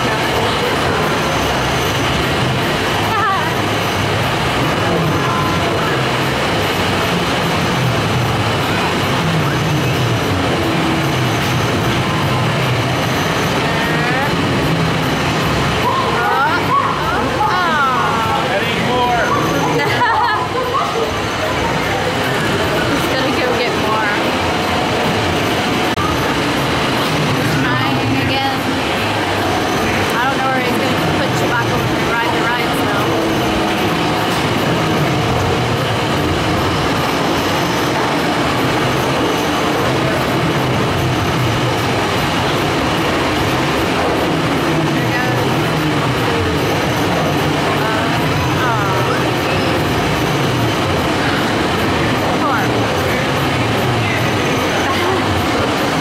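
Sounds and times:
arcade machine noise: 0.0 - 56.0.

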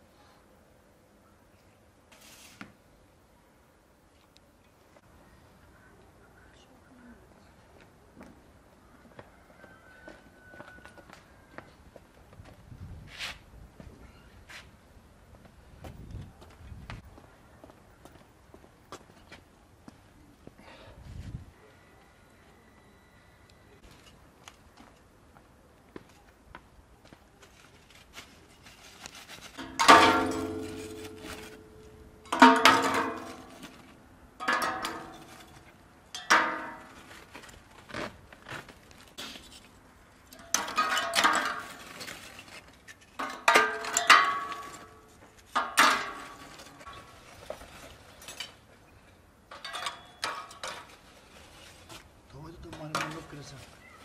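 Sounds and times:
charcoal clattering on sheet metal: 29.4 - 37.3, 40.3 - 48.6, 52.7 - 53.6.

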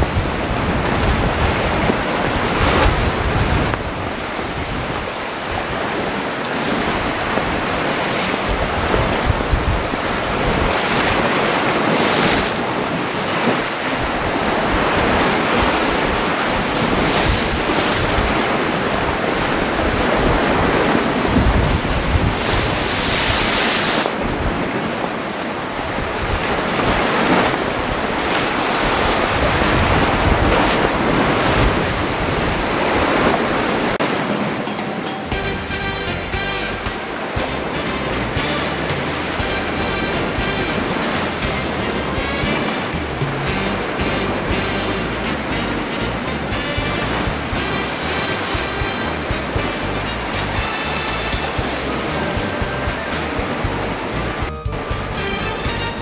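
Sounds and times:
wind buffeting microphone: 0.0 - 34.7
surf washing over rocks: 0.0 - 56.0.

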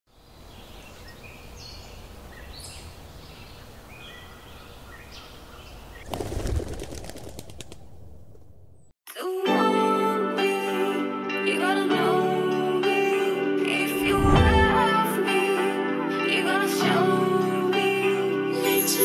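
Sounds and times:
birds chirping: 0.1 - 7.0
flock wing flapping: 6.0 - 8.7.

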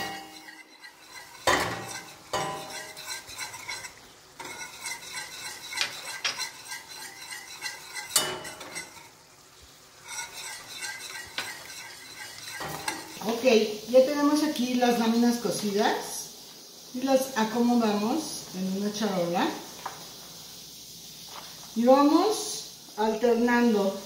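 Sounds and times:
whisk scraping metal pot: 0.0 - 9.2, 9.9 - 13.4.

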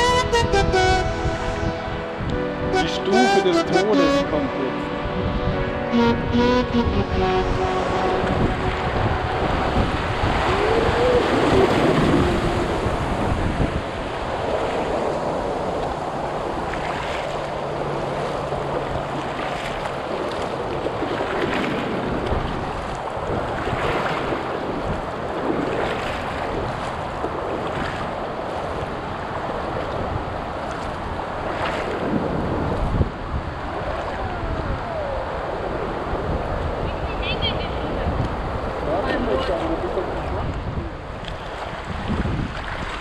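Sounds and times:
river rapids rushing: 0.0 - 21.0
wind buffeting microphone: 4.9 - 5.9, 7.4 - 16.8, 18.8 - 43.0
paddle splashes: 8.0 - 34.4, 38.2 - 43.0.

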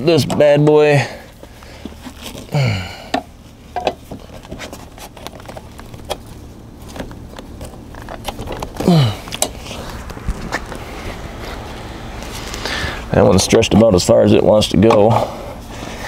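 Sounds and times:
person grunting: 2.5 - 3.2, 8.8 - 9.4.

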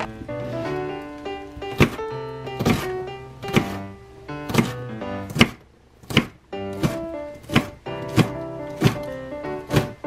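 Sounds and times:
knife chopping on cutting board: 1.7 - 2.0, 2.6 - 3.8, 4.5 - 10.0.

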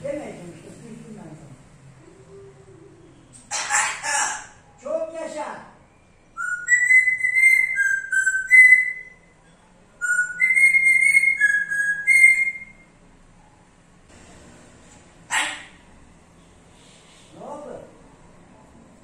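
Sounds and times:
parrot whistling a tune: 6.2 - 9.4, 10.0 - 12.9.

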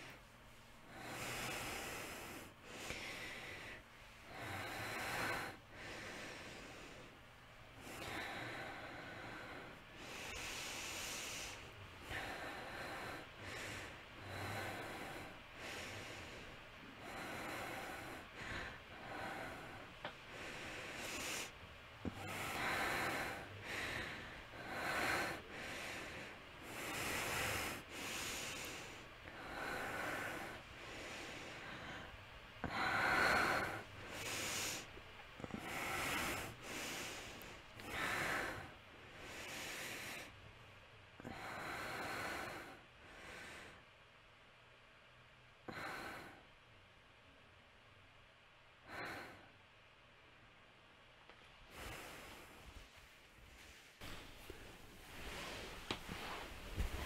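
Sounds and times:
woman breathing heavily with gasps: 0.0 - 40.5, 41.1 - 44.0, 45.6 - 46.6, 48.8 - 49.6, 51.7 - 57.0.

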